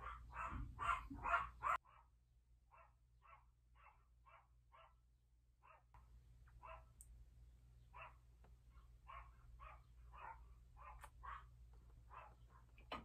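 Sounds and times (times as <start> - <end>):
dog barking: 0.0 - 2.1, 2.7 - 5.0, 5.6 - 5.9, 6.6 - 6.9, 7.9 - 12.7.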